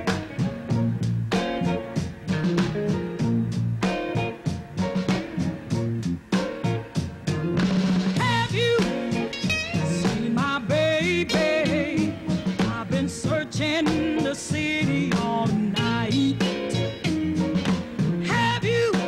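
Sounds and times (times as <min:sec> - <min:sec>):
band playing steady beat: 0:00.0 - 0:19.0
woman singing: 0:08.2 - 0:16.6, 0:18.3 - 0:19.0.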